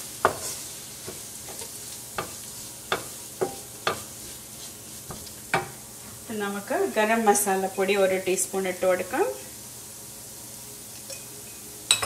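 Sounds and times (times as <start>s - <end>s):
onions sizzling in oil: 0.0s - 12.0s
wooden spatula knocking on pan: 1.0s - 4.1s, 5.1s - 5.8s.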